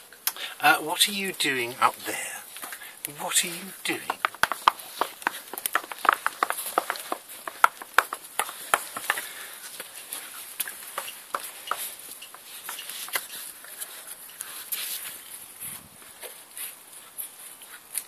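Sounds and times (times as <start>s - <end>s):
puppy claws scrabbling on stone: 3.9s - 15.2s.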